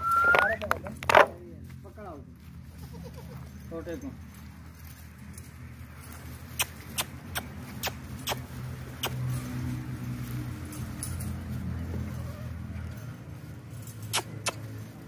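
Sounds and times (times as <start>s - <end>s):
low engine-like hum: 0.0s - 15.0s
sharp clicks: 6.6s - 8.4s, 9.0s - 9.2s, 14.1s - 14.6s.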